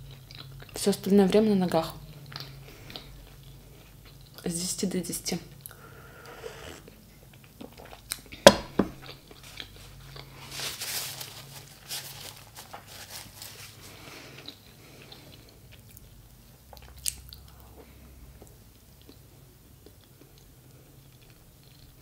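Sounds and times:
person sipping and swallowing: 5.7s - 7.0s
sharp knock: 8.5s - 9.0s
paper napkin rustling: 8.7s - 14.0s.

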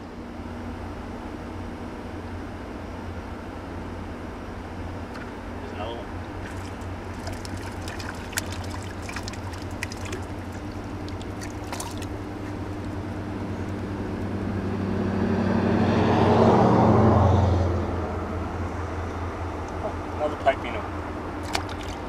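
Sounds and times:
engine passing by: 6.4s - 22.0s.

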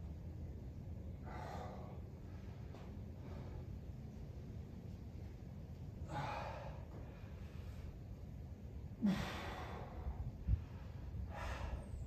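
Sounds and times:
person exhaling hard: 9.0s - 10.1s.

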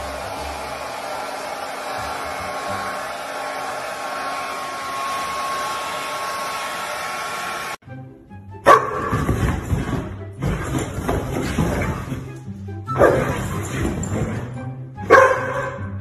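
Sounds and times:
hair dryer blowing: 0.0s - 7.8s.

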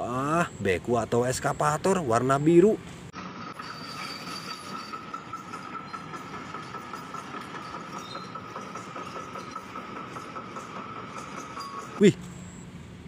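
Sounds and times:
excavator engine running: 2.8s - 13.0s.

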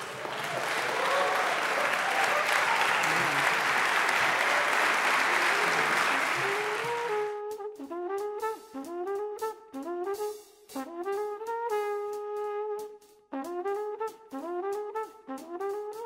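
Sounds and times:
crowd applauding: 0.0s - 7.3s
instrumental music: 5.3s - 16.0s.

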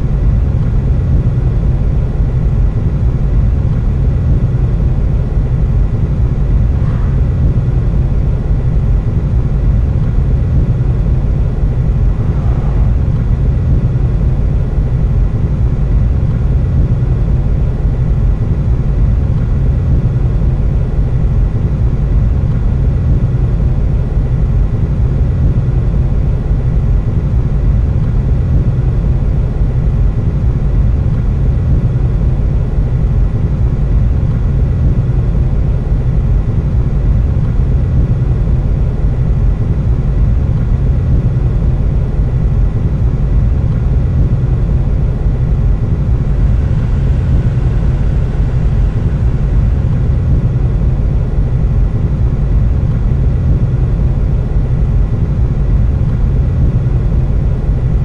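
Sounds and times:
car engine idling: 44.2s - 53.6s.

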